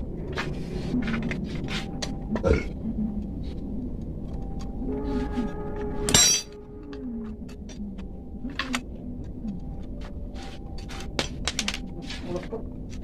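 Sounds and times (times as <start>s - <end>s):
ringing metallic clank: 6.1s - 6.6s.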